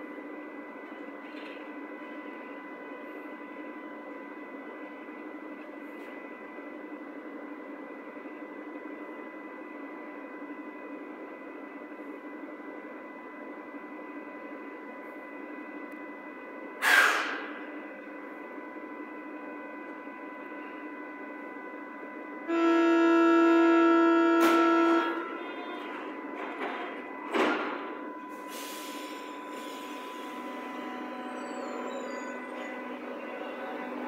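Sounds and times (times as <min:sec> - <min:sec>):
train equipment hum and whine: 0:00.0 - 0:34.0
multi-pitch signal tone: 0:21.7 - 0:25.7.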